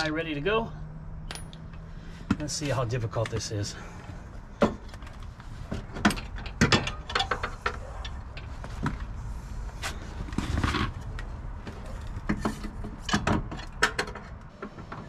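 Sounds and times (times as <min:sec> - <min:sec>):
metal knocks and clunks: 0:05.7 - 0:09.0.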